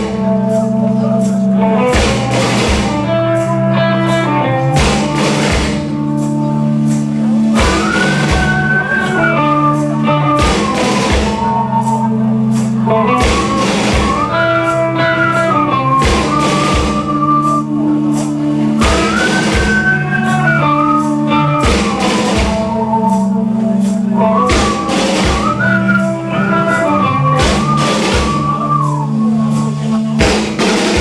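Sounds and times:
heavy guitar and bass chords: 0:00.0 - 0:31.0
drum and cymbal crashes: 0:01.9 - 0:03.1, 0:04.8 - 0:06.0, 0:10.4 - 0:11.5, 0:16.0 - 0:17.1, 0:27.4 - 0:28.6, 0:29.8 - 0:31.0.

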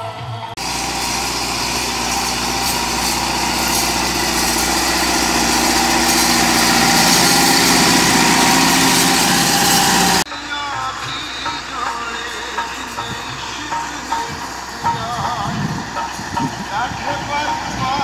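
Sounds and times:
tractor diesel engine under load: 0:00.0 - 0:18.0
cultivator pulled through soil: 0:00.6 - 0:10.3.

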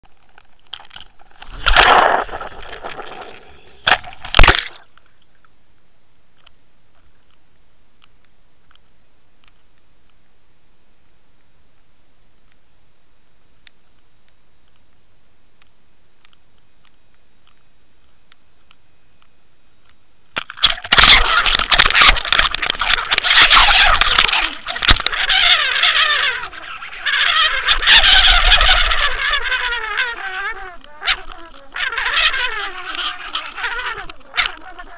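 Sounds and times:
crackling rush of water: 0:00.6 - 0:05.0, 0:20.4 - 0:29.5.

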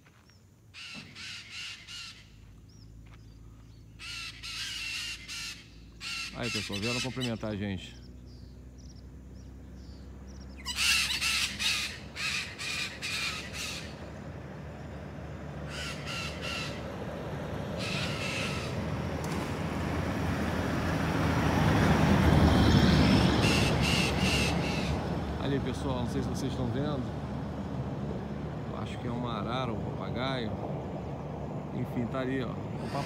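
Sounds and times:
parrots calling: 0:00.8 - 0:02.4, 0:03.9 - 0:07.6, 0:10.5 - 0:14.2, 0:15.6 - 0:17.0, 0:17.7 - 0:18.9, 0:22.9 - 0:25.1, 0:32.8 - 0:33.0.

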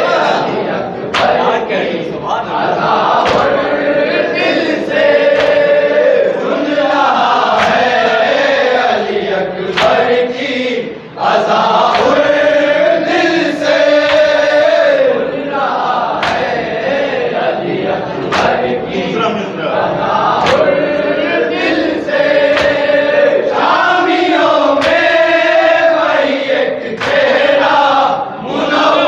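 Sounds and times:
men chanting a lament: 0:00.0 - 0:29.0
chest-beating slaps: 0:01.0 - 0:01.6, 0:03.0 - 0:03.9, 0:04.8 - 0:06.0, 0:07.2 - 0:08.1, 0:09.7 - 0:10.4, 0:11.8 - 0:12.4, 0:13.6 - 0:14.8, 0:16.1 - 0:16.8, 0:18.2 - 0:18.9, 0:20.4 - 0:21.0, 0:21.6 - 0:23.8, 0:24.6 - 0:25.7, 0:26.9 - 0:27.7.

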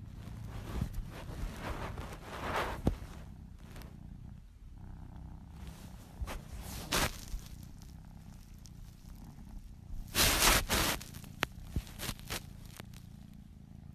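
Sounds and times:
kitten purring: 0:00.0 - 0:13.9
fur rubbing against phone: 0:00.2 - 0:03.9, 0:05.6 - 0:07.9, 0:10.0 - 0:13.1.

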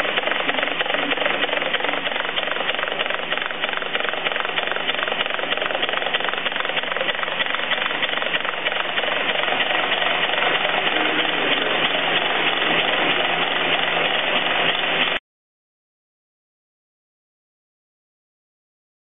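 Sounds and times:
pneumatic motor running: 0:00.0 - 0:15.2.

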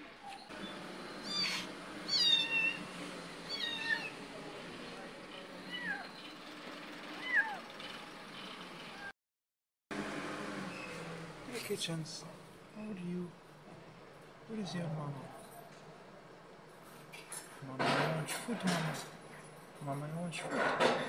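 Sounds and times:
cat meowing: 0:01.2 - 0:02.8, 0:03.5 - 0:04.2, 0:05.6 - 0:06.2, 0:07.2 - 0:07.6.

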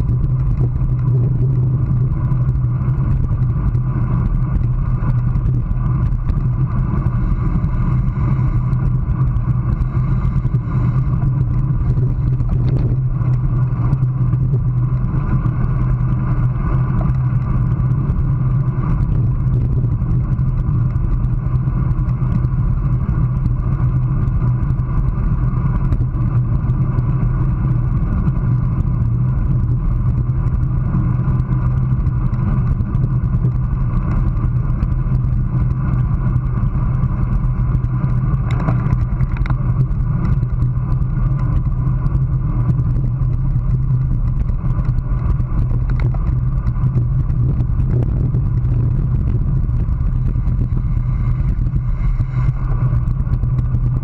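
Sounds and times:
road rumble: 0:00.0 - 0:54.0
wind rush: 0:00.0 - 0:54.0.

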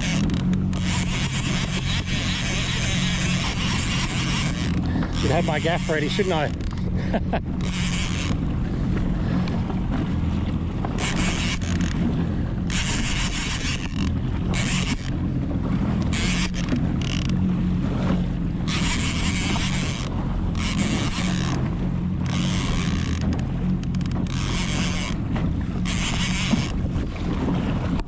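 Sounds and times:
jet ski engine idling: 0:00.0 - 0:28.0.

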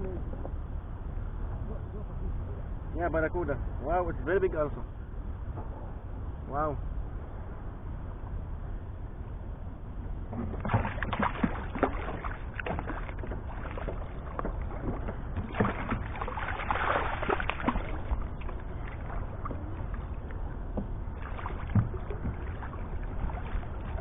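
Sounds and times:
wind on microphone: 0:00.0 - 0:24.0
water splashing: 0:10.3 - 0:24.0.

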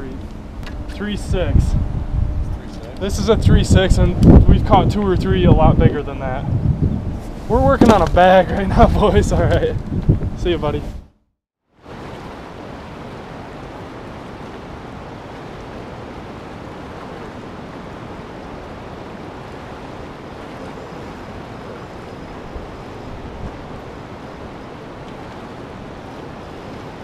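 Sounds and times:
wind buffeting microphone: 0:00.0 - 0:11.1, 0:11.9 - 0:27.0
fast river current: 0:11.7 - 0:27.0.

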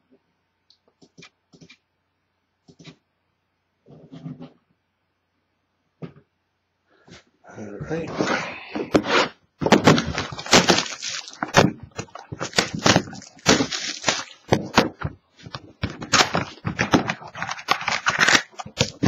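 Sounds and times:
plastic shrink wrap crinkling and tearing: 0:09.7 - 0:19.0.

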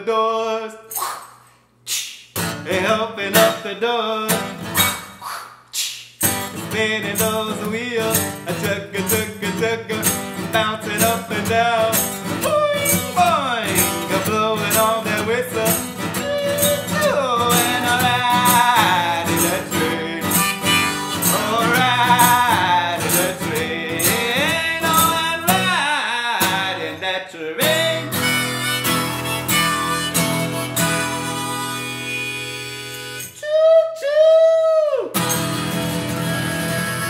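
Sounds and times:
strummed acoustic guitar: 0:02.4 - 0:05.2, 0:06.2 - 0:33.4, 0:35.2 - 0:37.0
harmonica melody with bending notes: 0:10.0 - 0:25.8, 0:27.6 - 0:33.9, 0:35.2 - 0:37.0.

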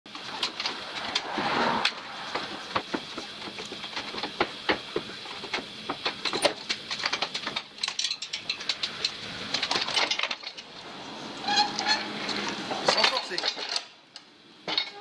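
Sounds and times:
wheeled frame rattling on wooden planks: 0:02.3 - 0:10.7.

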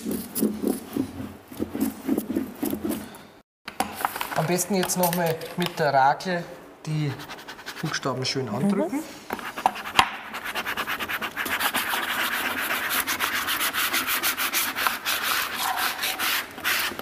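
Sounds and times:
plastic squeegee scraping tape: 0:10.6 - 0:17.0.

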